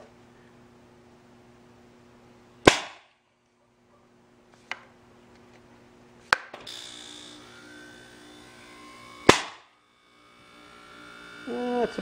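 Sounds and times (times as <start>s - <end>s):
launcher firing pop: 2.6s - 3.2s, 9.2s - 9.7s.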